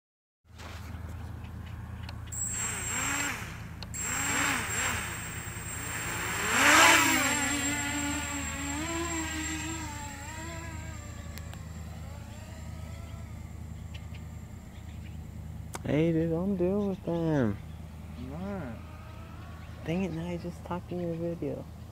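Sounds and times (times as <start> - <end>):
drone motors whining: 2.1 - 15.6.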